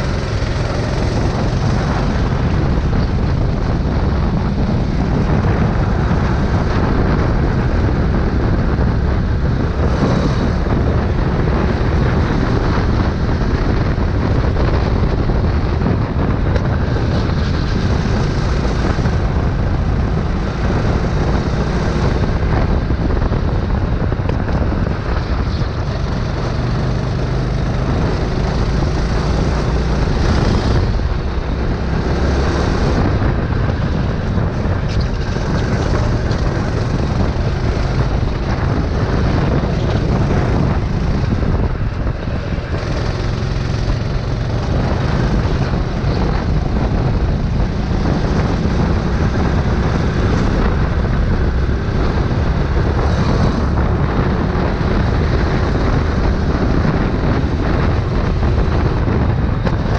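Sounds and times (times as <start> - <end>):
go-kart engine racing: 0.0 - 59.9
wind noise on microphone: 0.0 - 59.9.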